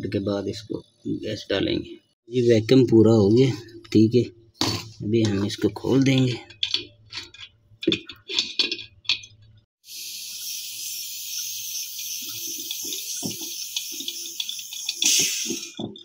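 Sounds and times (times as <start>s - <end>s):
air hissing into line: 9.8s - 15.9s.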